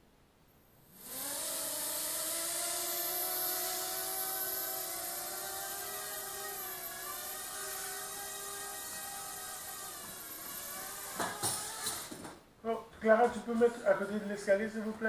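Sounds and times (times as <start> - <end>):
quadcopter motors whining: 0.9 - 12.2.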